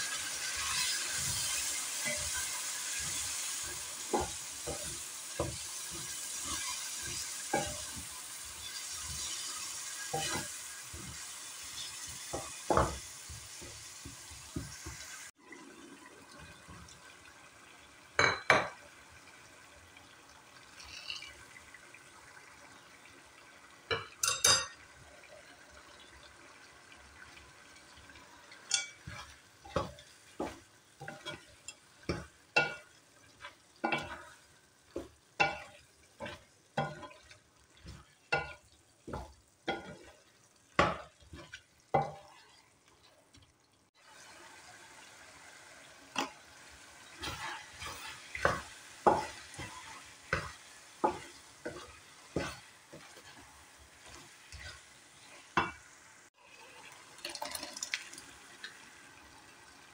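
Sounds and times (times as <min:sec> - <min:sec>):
faint frying sizzle: 0:00.0 - 0:59.9
wooden spatula scraping metal pan: 0:00.1 - 0:15.0, 0:28.7 - 0:40.2, 0:47.0 - 0:55.8.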